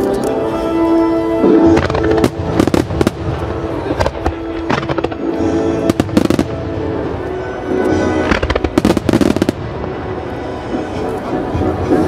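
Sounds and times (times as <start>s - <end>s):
music: 0.0s - 12.0s
fireworks banging: 1.4s - 10.7s.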